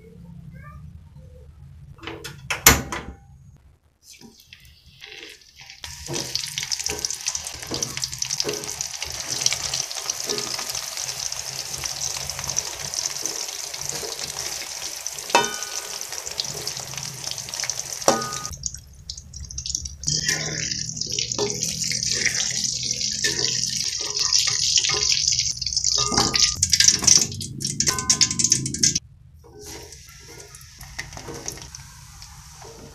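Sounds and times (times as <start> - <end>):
food sizzling in hot oil: 4.0 - 29.0, 29.6 - 32.9
metal utensil clinking on wok: 13.9 - 16.8, 18.1 - 18.6, 20.1 - 29.0.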